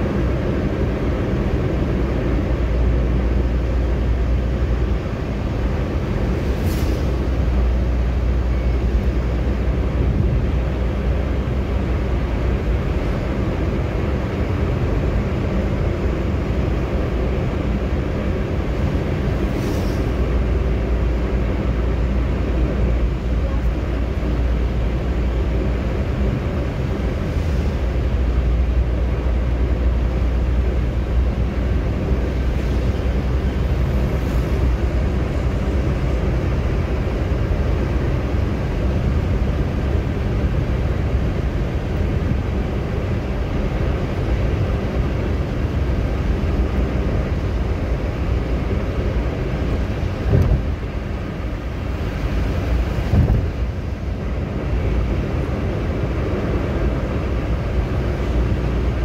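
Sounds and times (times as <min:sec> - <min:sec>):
tyres on asphalt: 0:00.0 - 0:59.0.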